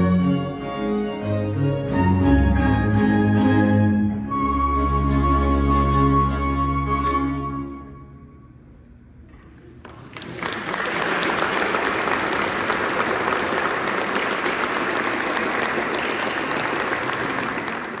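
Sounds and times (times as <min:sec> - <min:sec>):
audience applause: 0:09.7 - 0:18.0.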